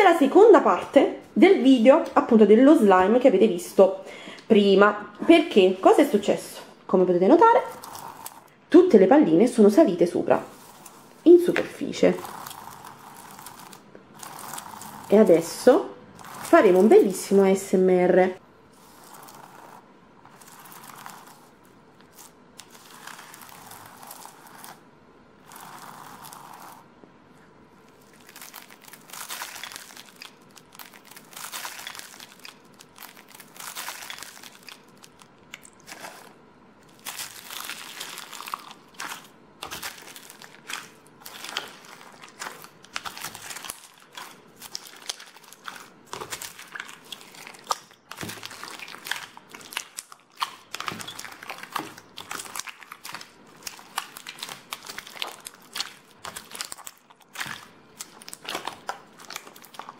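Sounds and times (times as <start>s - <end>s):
slime crust crunching and crackling: 7.3s - 8.6s, 9.6s - 17.8s, 18.8s - 26.9s, 27.8s - 59.9s
wet slime squeezed: 10.5s - 15.5s, 22.1s - 24.8s, 28.0s - 59.9s.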